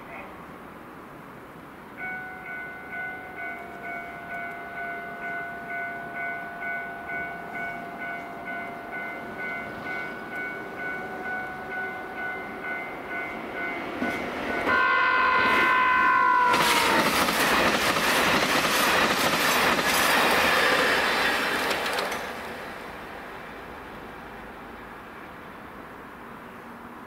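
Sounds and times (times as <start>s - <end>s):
train horn: 14.6s - 17.3s.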